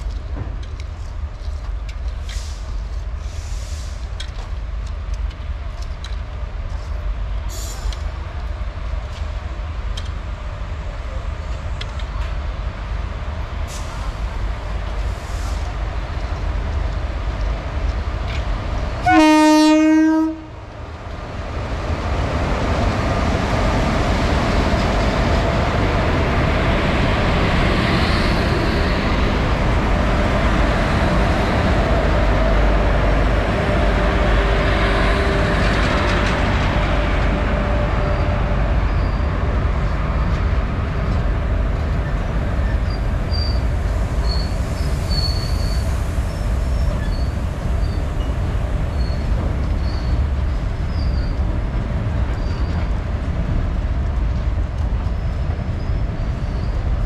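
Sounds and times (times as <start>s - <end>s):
freight train rumbling past: 0.0s - 57.0s
locomotive horn blast: 19.0s - 20.5s.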